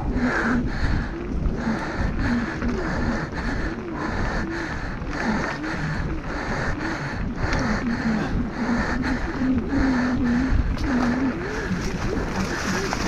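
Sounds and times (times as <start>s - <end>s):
rider breathing hard: 0.0s - 13.0s
mountain bike rattling over trail: 11.0s - 13.0s.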